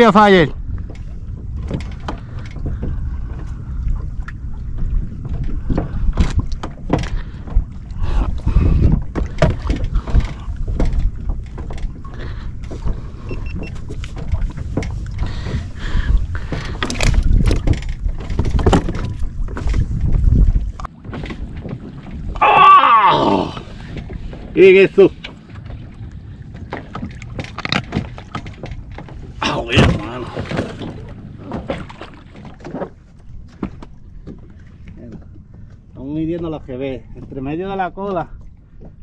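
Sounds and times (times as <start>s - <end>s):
steady deep rumble: 0.0s - 21.6s
gear knocking and clattering: 16.4s - 20.0s.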